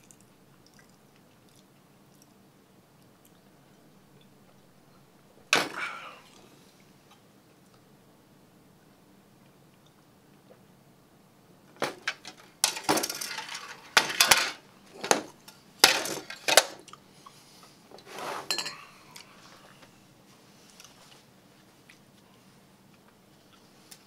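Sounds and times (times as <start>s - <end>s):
dishes clinking and clattering: 11.8s - 16.8s, 18.4s - 18.8s.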